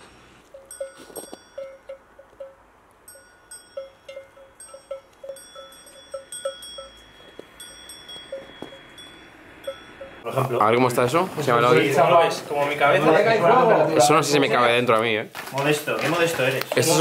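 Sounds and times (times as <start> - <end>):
livestock bells clinking: 0.4 - 10.7.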